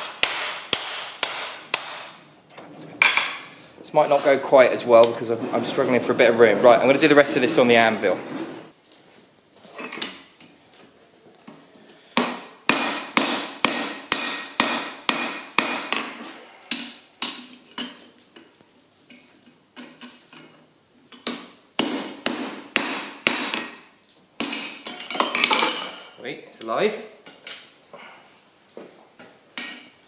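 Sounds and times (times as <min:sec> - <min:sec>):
hammer striking steel on anvil: 0:00.0 - 0:02.2, 0:12.2 - 0:16.1, 0:21.3 - 0:26.1.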